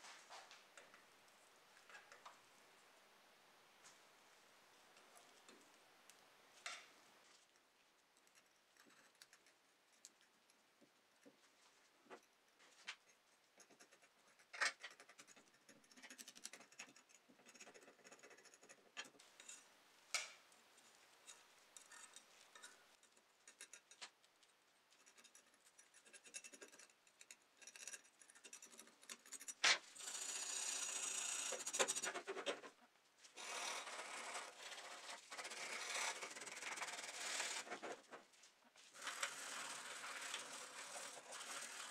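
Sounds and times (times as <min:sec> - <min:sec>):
faint clicks and crackles: 0:04.7 - 0:30.1.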